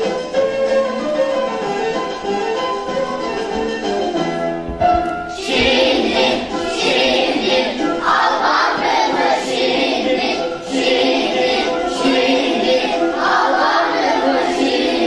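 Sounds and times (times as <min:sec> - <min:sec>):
children's choir singing: 0:05.3 - 0:15.0.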